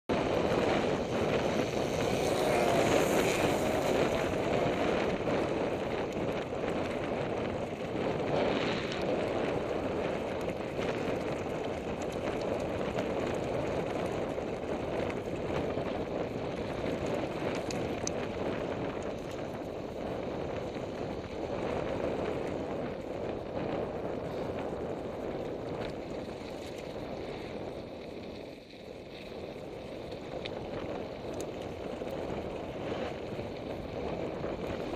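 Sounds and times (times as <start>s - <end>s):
bike clicks and rattles: 0.1s - 34.9s
bike tyres crunching on gravel: 0.1s - 34.9s.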